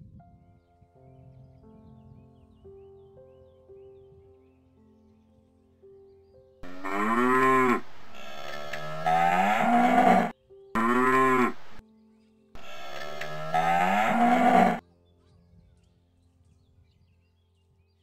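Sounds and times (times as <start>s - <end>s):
cow mooing: 6.6s - 11.8s, 12.6s - 14.8s.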